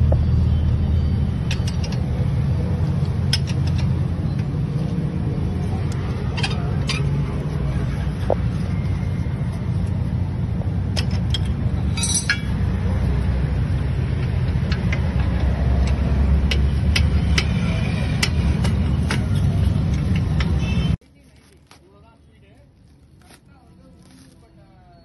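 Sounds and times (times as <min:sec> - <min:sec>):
metal tools clinking: 0:11.0 - 0:12.6.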